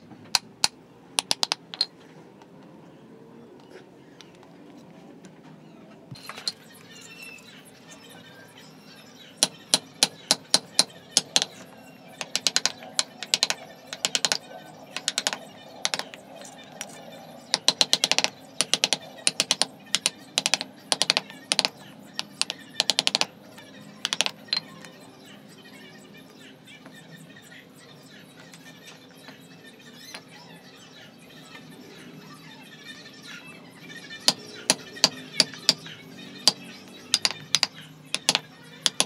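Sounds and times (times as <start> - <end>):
mallet tapping wooden chisel: 0.4 - 1.9, 9.4 - 11.6, 12.2 - 14.4, 15.0 - 16.2, 16.8 - 23.3, 24.0 - 24.6, 34.3 - 35.8, 36.4 - 39.0.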